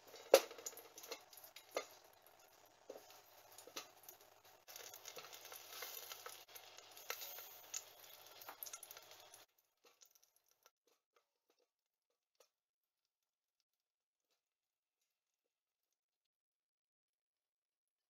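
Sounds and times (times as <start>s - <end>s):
vegetables tapping into metal pot: 0.0s - 10.1s.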